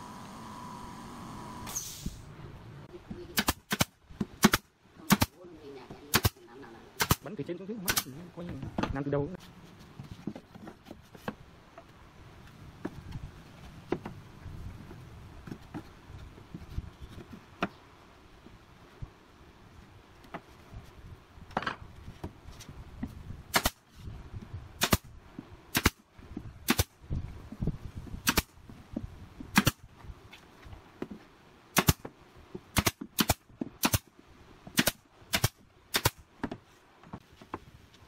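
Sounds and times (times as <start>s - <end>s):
nail gun firing: 3.4s - 5.4s, 6.1s - 6.4s, 7.0s - 8.1s, 23.5s - 23.8s, 24.8s - 25.1s, 25.7s - 26.0s, 26.6s - 26.9s, 28.2s - 28.5s, 29.5s - 29.8s, 31.8s - 32.1s, 32.7s - 34.1s, 34.8s - 36.2s.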